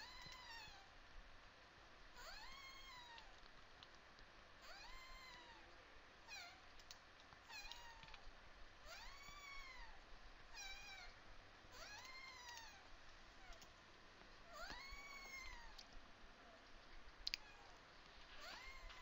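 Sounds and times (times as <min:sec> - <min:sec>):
cat meowing faintly: 0:02.2 - 0:03.4, 0:04.6 - 0:05.7, 0:08.8 - 0:13.7, 0:14.4 - 0:16.6, 0:17.3 - 0:19.0.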